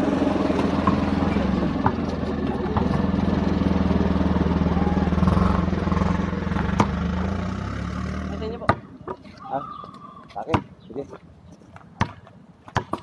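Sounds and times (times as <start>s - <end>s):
car engine humming: 0.0s - 8.7s.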